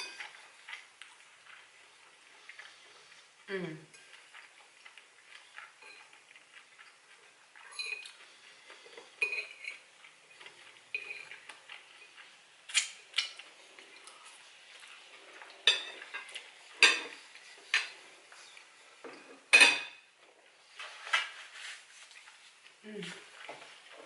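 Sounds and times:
fork clinking against ceramic bowl: 7.6s - 8.1s, 9.2s - 9.8s.

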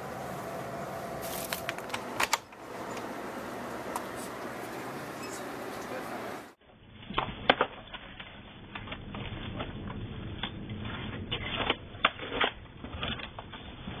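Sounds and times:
low steady rumble: 0.0s - 5.2s, 8.3s - 14.0s.

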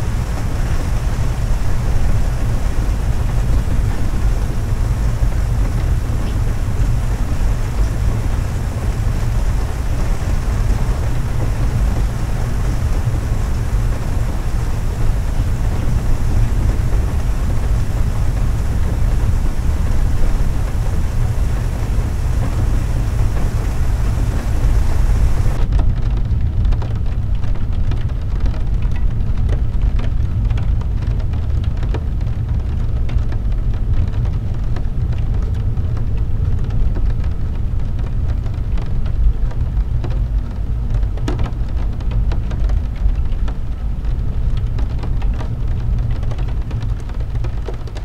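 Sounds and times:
low rumble: 0.0s - 31.2s
heavy rain on car windshield: 0.0s - 48.0s.

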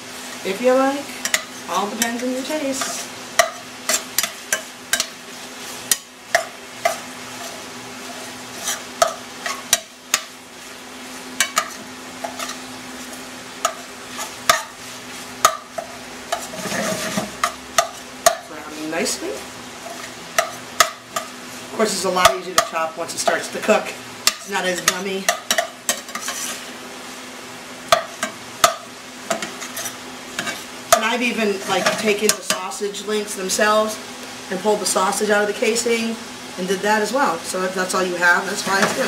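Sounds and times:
sausage sizzling in a pan: 0.0s - 39.0s
metal spoon scraping a pan: 1.2s - 10.3s, 11.4s - 14.8s, 15.4s - 19.1s, 19.8s - 21.4s, 24.2s - 26.7s, 27.9s - 32.7s, 38.5s - 39.0s.

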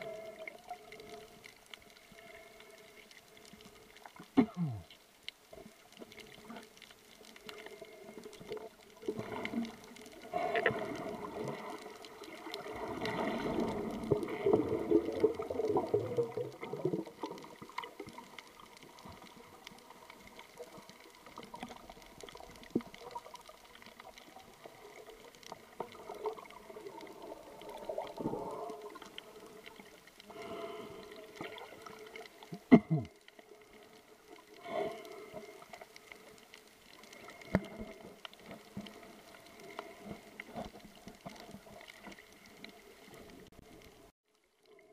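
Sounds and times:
muffled water swishing and bubbling: 0.0s - 44.9s.

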